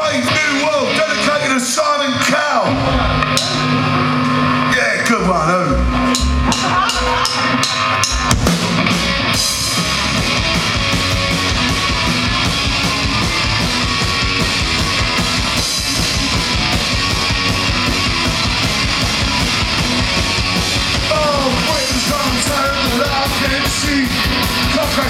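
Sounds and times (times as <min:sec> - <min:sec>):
rock band playing: 0:00.0 - 0:25.0
drum hits: 0:05.9 - 0:25.0.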